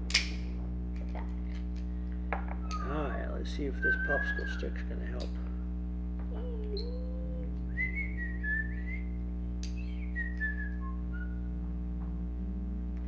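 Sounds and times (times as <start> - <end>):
steady low hum: 0.0 - 13.0
person whistling: 2.6 - 5.0, 6.4 - 11.5.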